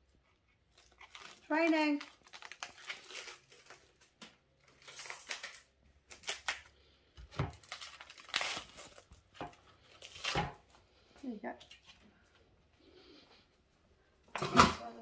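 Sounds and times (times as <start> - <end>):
plastic film crinkling: 0.7 - 10.7.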